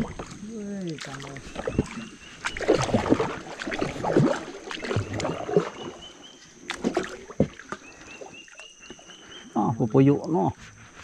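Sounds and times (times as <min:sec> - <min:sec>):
water splashing against boat: 0:00.0 - 0:11.0
knocks against hull: 0:06.7 - 0:07.8.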